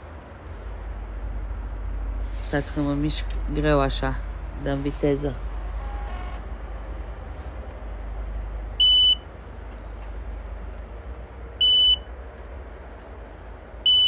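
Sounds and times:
steady low rumble: 0.0 - 14.0
short high electronic beeps: 8.8 - 9.2.

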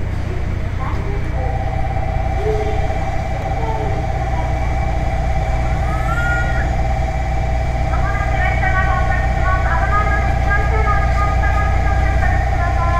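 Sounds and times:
faint voices: 0.0 - 12.9
low rumble: 0.0 - 12.9
electronic buzzing warning tone: 1.4 - 12.9.

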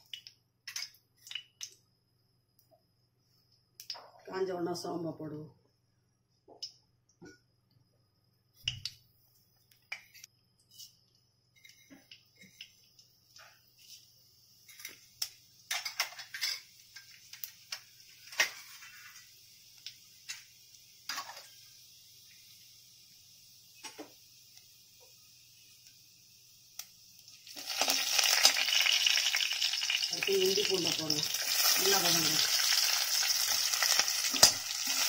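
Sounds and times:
seeds sizzling in hot oil: 0.0 - 1.8, 10.0 - 35.0
ladle stirring seeds: 27.5 - 35.0.

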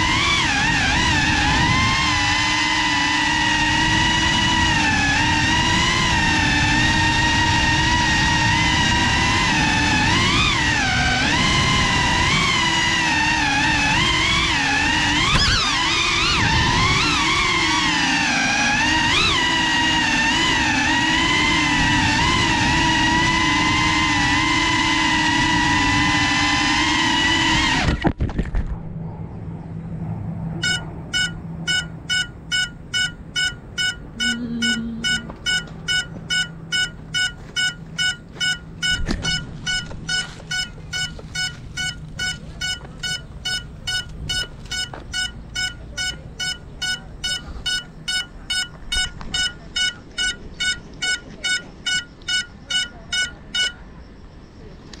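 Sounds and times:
drone motors whining: 0.0 - 28.2, 28.8 - 55.0
high beeping alarm: 30.6 - 54.7.

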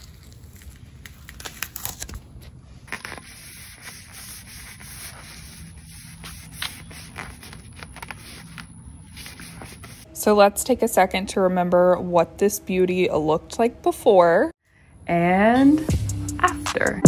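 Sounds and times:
tape peeled off crackling: 0.0 - 10.1
paper towel rubbing wood: 2.9 - 10.1.

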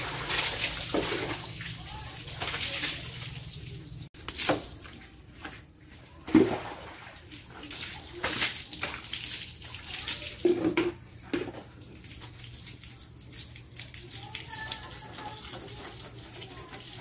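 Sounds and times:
water splashing on motorcycle: 0.0 - 5.2.

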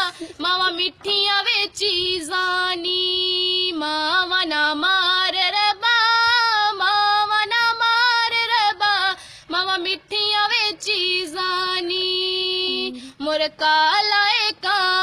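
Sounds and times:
girl singing unaccompanied: 0.0 - 15.0.

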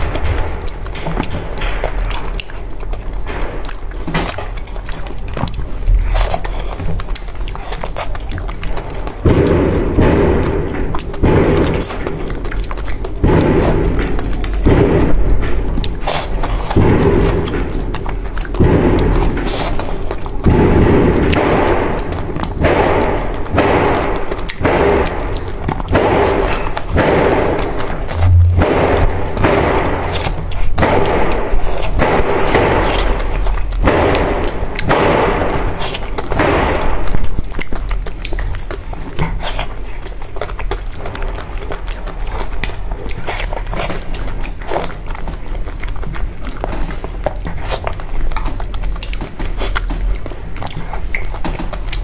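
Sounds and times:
chewing sticky rice balls: 0.0 - 52.0
music with heavy thudding beat: 25.9 - 32.8
louder deeper sound: 26.5 - 31.4
deep low drone: 28.0 - 30.6.

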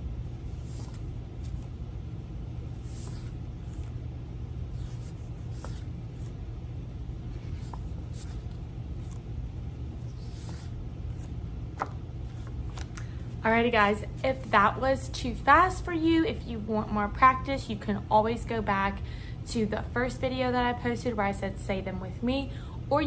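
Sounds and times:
low room hum: 0.0 - 23.0
paper cards swishing: 0.4 - 6.4, 7.2 - 13.2.

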